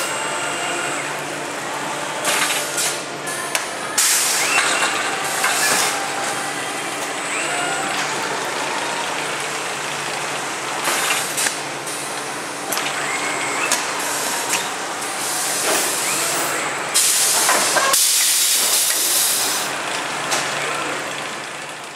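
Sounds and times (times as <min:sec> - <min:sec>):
steady machine noise: 0:00.0 - 0:21.9
pneumatic gripper hissing: 0:02.2 - 0:03.1, 0:03.9 - 0:06.4, 0:12.7 - 0:19.7.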